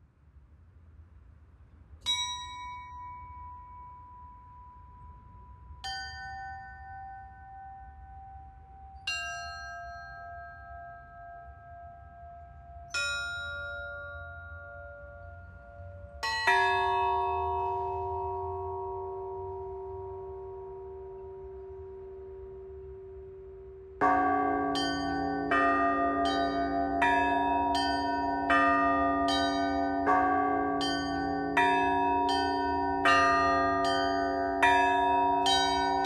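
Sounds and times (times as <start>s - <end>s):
church bells ringing: 12.9s - 36.0s.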